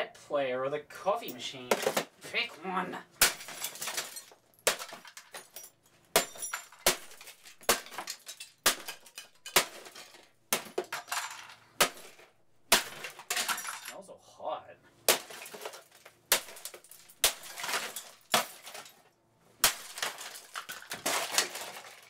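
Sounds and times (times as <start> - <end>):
broken pieces clinking and scattering: 3.2 - 12.2, 12.8 - 14.0, 15.1 - 22.0.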